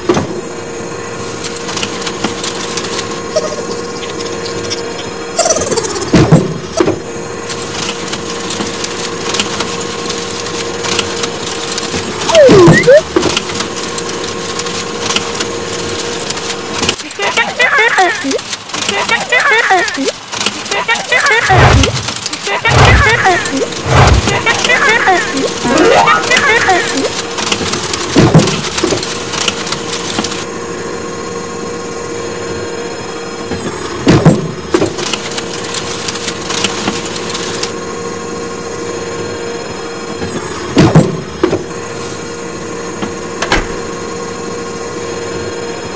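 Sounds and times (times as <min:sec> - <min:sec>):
steady mechanical hum: 0:00.0 - 0:45.9
rapid crackling clicking: 0:07.5 - 0:30.5.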